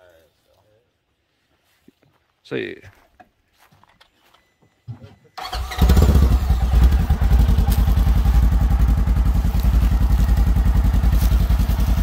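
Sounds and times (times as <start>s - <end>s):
engine idling: 5.4s - 12.0s.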